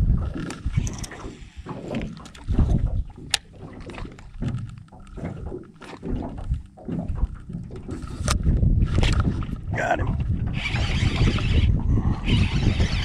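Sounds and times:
wind gusts on microphone: 0.0 - 3.2, 7.9 - 13.0
waves slapping boat hull: 0.0 - 11.8.

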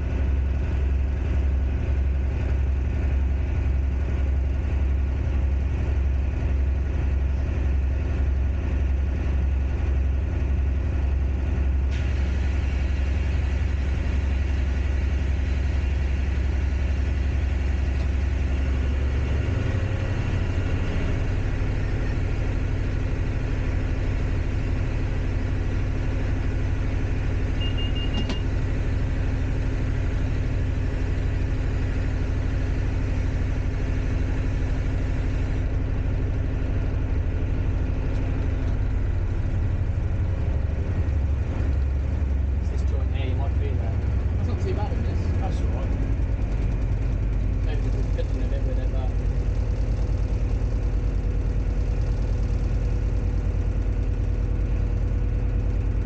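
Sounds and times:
diesel locomotive engine droning: 0.0 - 56.0
short high beep: 27.6 - 28.5.

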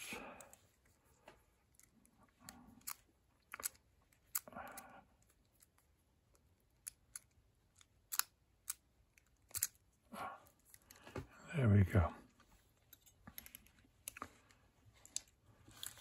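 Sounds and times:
small clicks of padlock wheels: 2.8 - 4.8, 5.5 - 9.8.

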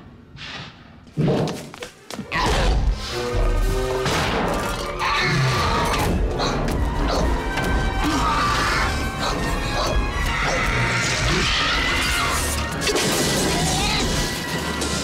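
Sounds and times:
action soundtrack music: 2.4 - 15.0
metal objects crashing and clattering: 3.6 - 6.7, 11.3 - 15.0.

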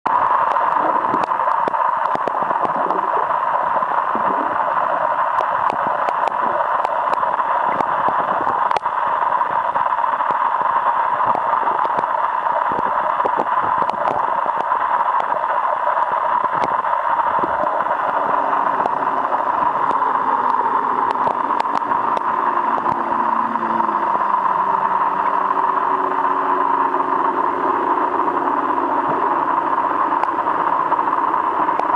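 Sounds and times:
sharp underwater clicks: 0.1 - 23.2, 27.6 - 31.9
faint low drone: 0.1 - 31.9
muffled underwater water rushing: 0.1 - 31.9.

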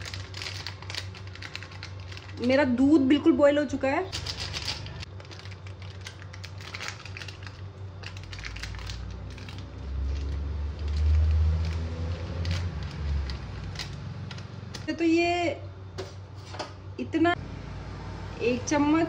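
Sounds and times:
plastic sachet crinkling: 0.0 - 2.8, 4.0 - 14.9.

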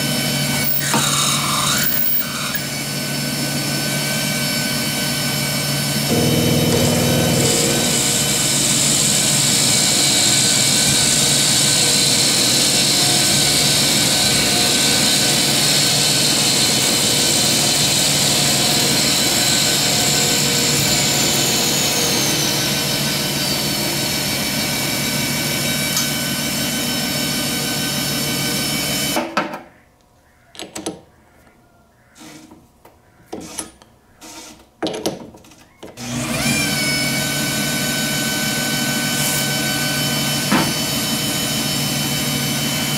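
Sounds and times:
metal lathe whining: 0.6 - 5.2, 5.9 - 29.0.

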